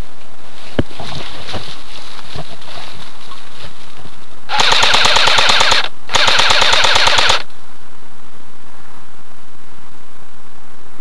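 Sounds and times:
airsoft rifle full-auto bursts: 4.5 - 7.5.

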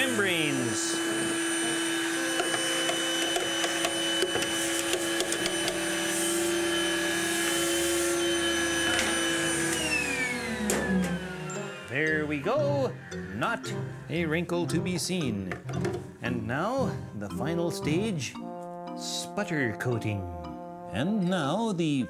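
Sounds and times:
vacuum cleaner running: 0.0 - 14.1.

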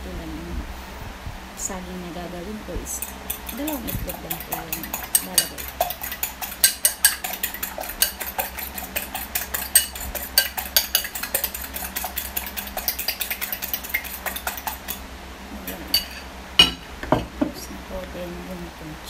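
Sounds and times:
fork beating eggs in glass bowl: 3.0 - 15.0, 15.6 - 16.8.

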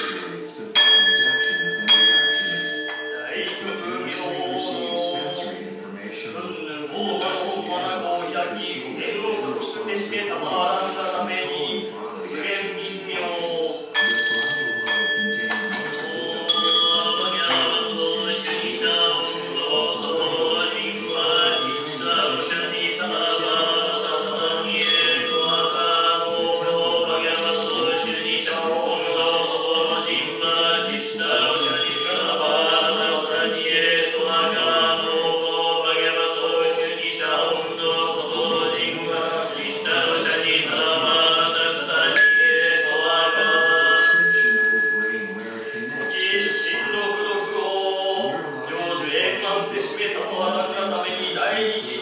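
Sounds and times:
voices chanting: 0.0 - 52.0
high ringing tone: 0.1 - 5.8, 13.6 - 34.3, 42.1 - 52.0.

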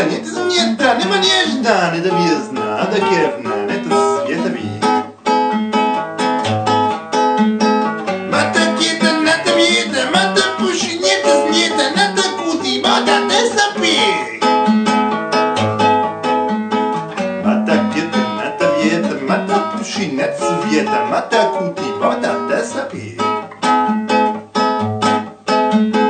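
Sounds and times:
man singing: 0.0 - 5.1, 8.3 - 14.7, 17.4 - 23.4
acoustic guitar strumming chords: 0.0 - 26.0.

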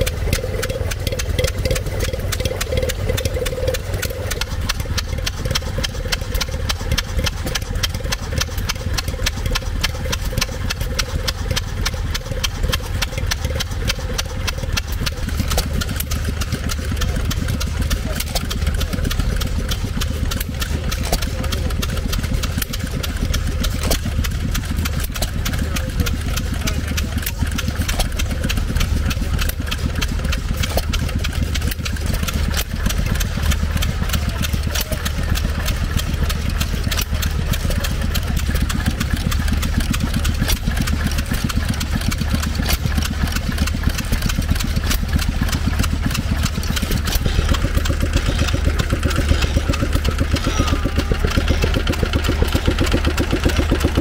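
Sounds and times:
stationary engine running: 0.0 - 54.0
low hum: 45.4 - 54.0.

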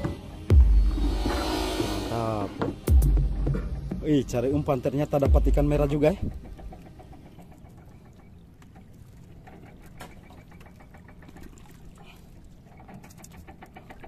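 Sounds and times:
low steady rumble: 0.5 - 3.7
water lapping against boat hull: 4.6 - 14.0.

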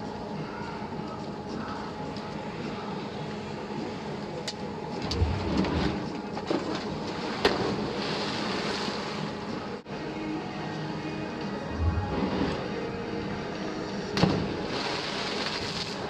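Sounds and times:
splash into pool: 14.2 - 16.0.

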